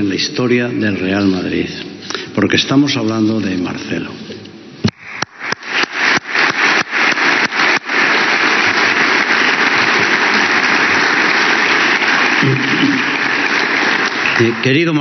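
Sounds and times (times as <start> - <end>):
audience applauding: 4.9 - 15.0.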